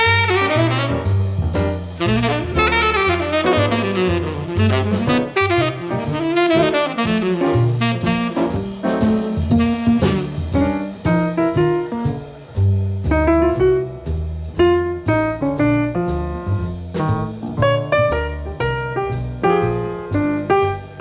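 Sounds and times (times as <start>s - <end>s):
saxophone melody: 0.0s - 1.2s, 2.0s - 8.6s, 9.6s - 10.6s
bass notes: 0.0s - 21.0s
drum kit: 0.0s - 21.0s.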